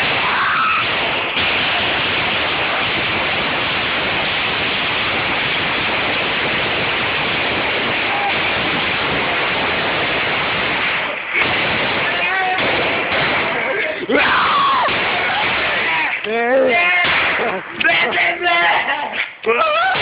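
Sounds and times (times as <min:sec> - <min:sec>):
firework fountain hissing: 0:00.0 - 0:11.4.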